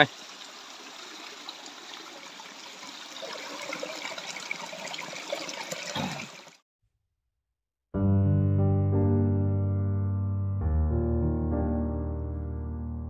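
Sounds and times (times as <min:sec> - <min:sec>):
water trickling over rocks: 0:00.0 - 0:06.6.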